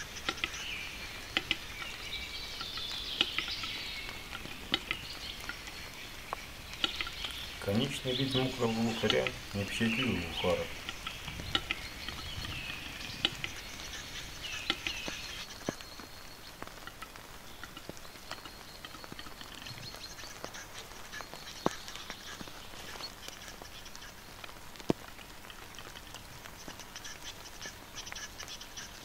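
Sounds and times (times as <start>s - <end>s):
bird sharp clicks: 0.0s - 15.8s, 16.6s - 24.2s
faint scratchy high hiss: 0.0s - 29.0s.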